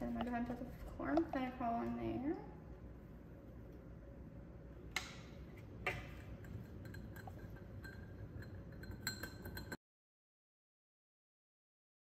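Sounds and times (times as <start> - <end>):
clinks and taps on glass beaker: 5.9 - 9.8.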